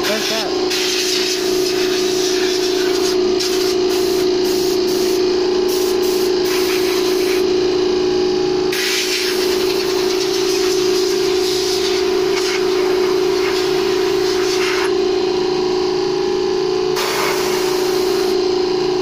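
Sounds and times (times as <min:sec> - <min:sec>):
compressed air hissing: 0:00.0 - 0:07.4, 0:08.7 - 0:14.9, 0:17.0 - 0:18.4
steady hum: 0:00.0 - 0:19.0.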